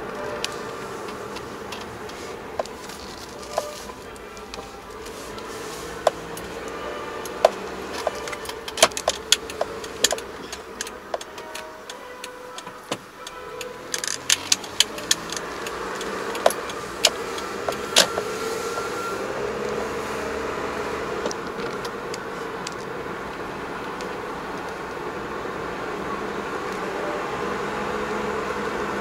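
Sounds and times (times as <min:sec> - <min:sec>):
car engine and road noise: 0:00.0 - 0:29.0
loose items clicking and rattling: 0:00.4 - 0:18.3.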